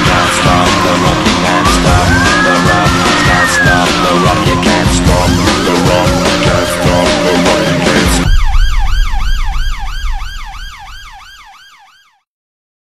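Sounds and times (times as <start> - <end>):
rock music: 0.0 - 11.6
police siren yelping: 0.2 - 12.2
low rumble: 4.4 - 11.6.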